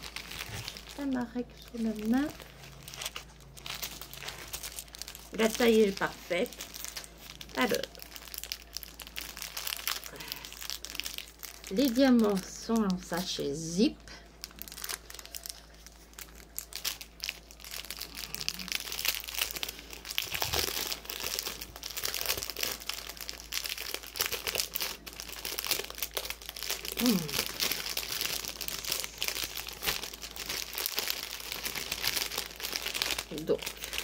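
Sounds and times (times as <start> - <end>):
plastic bags crinkling: 0.0 - 34.0.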